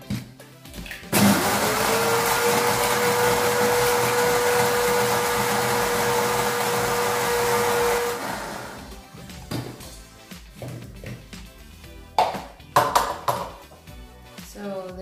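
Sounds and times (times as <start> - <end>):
coffee grinder running: 1.1 - 9.0.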